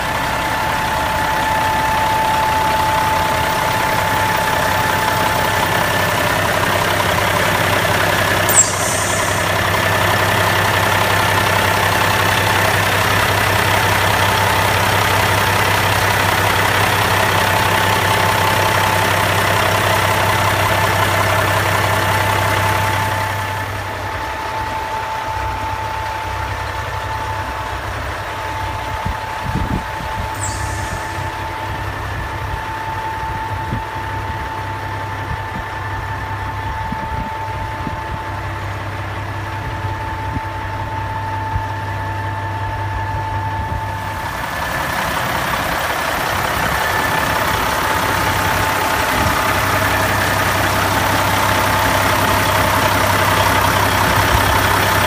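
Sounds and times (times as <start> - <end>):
diesel truck engine idling: 0.0 - 55.0
high whine: 2.5 - 13.4, 28.8 - 34.6.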